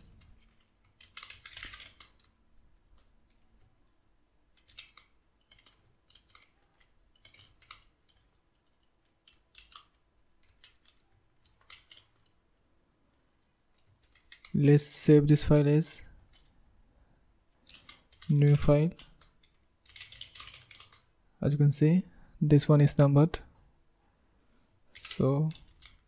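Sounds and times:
computer keyboard typing: 0.0 - 3.5, 4.5 - 12.4, 13.7 - 14.6, 16.3 - 16.5, 17.6 - 21.1, 24.9 - 26.0.

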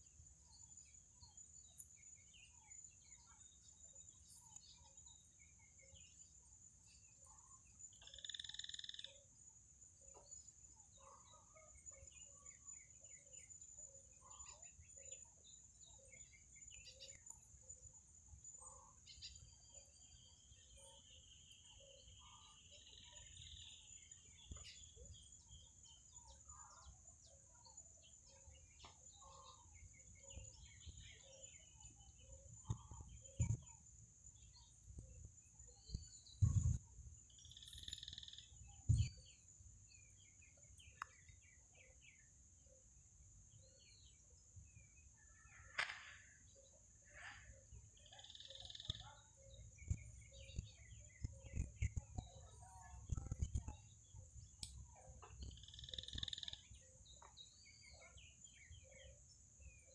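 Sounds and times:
bird trill: 6.9 - 9.3, 10.9 - 42.8, 43.6 - 59.9
bird chirps and calls: 7.0 - 9.2, 18.6 - 42.3, 43.6 - 59.9.

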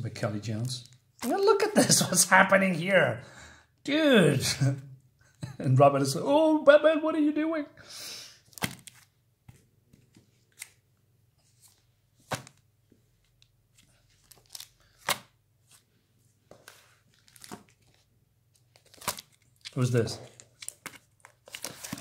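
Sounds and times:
plastic bags crinkling: 18.6 - 22.0.

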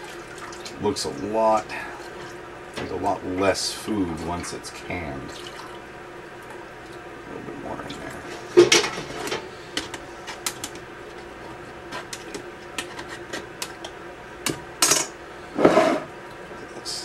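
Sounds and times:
scraping sounds: 12.8 - 13.5, 15.5 - 16.1.

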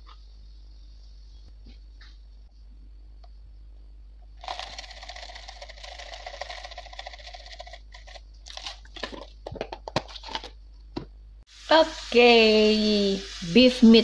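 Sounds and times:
fried onions rattling in plastic jar: 4.4 - 9.8.

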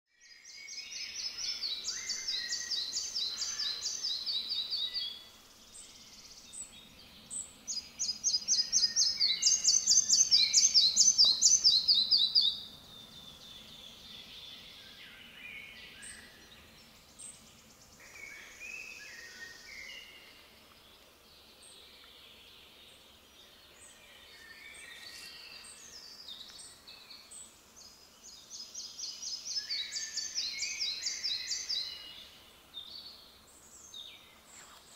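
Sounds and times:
other birds calling: 1.3 - 5.2.

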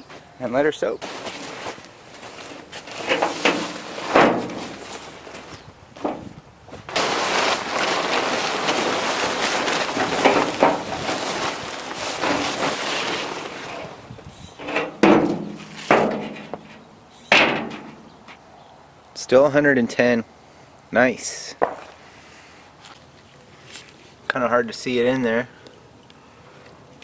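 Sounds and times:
plastic tarps rustling and crumpling: 0.9 - 16.7.

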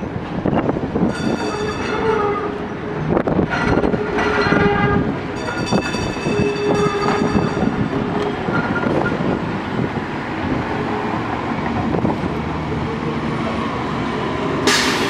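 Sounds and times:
street traffic: 0.0 - 15.0
streetcar wheels squealing: 0.5 - 9.4.

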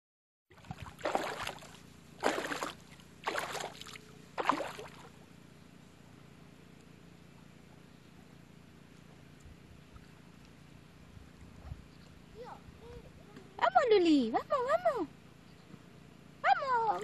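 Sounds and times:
footsteps splashing in shallow water: 0.5 - 5.2.

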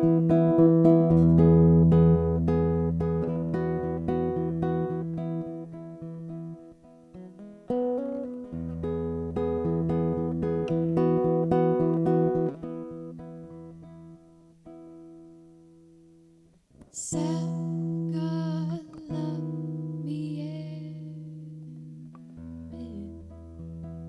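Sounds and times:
acoustic guitar fingerpicked: 0.0 - 24.0
woman singing: 16.9 - 21.4, 22.7 - 23.4.

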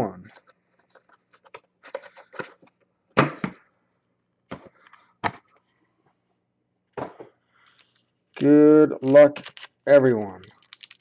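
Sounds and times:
foil packet rustling: 9.0 - 9.8, 10.4 - 11.0.

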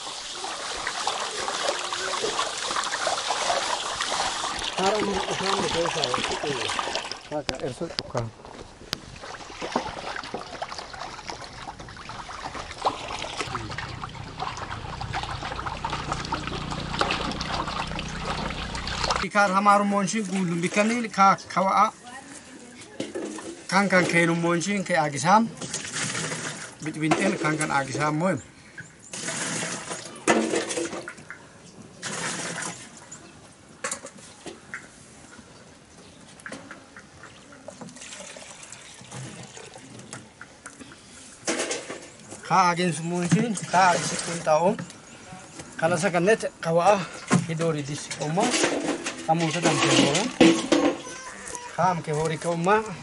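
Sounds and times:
hands sloshing water in metal basin: 0.0 - 7.4, 9.2 - 19.2, 48.0 - 51.0.

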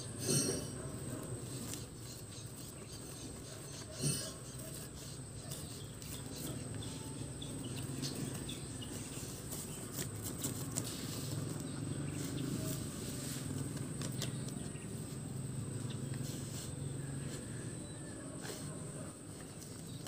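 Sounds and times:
puppies digging in dirt: 0.1 - 20.0
crickets droning: 5.3 - 10.2, 10.9 - 20.0.

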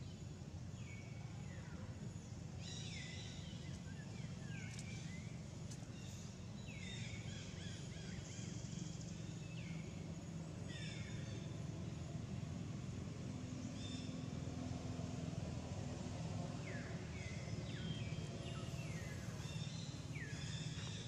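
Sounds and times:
steady low hum: 0.0 - 21.0
birds whistling: 16.7 - 21.0.

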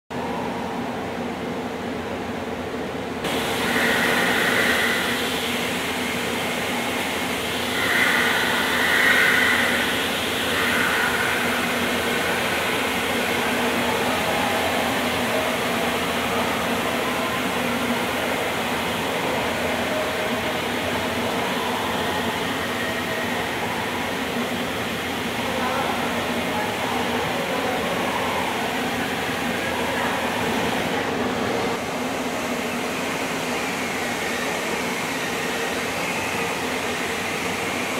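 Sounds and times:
floor scrubber motor hum: 3.2 - 26.6
high whine: 3.2 - 30.2.

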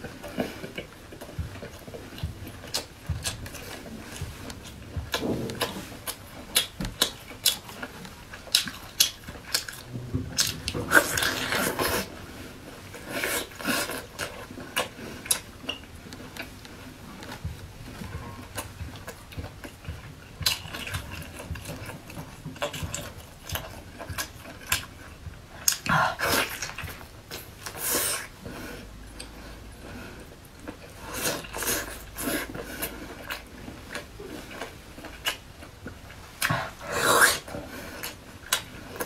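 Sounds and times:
wet chewing: 0.0 - 39.0.

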